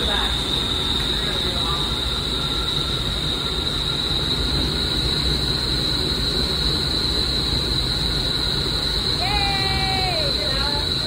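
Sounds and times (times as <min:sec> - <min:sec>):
high-pitched whine: 0:00.0 - 0:11.0
wind tunnel air roar: 0:00.0 - 0:11.0.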